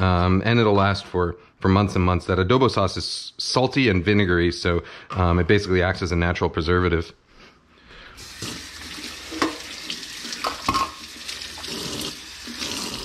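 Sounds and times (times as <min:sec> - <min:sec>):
faucet running into metal sink: 0:08.2 - 0:13.0.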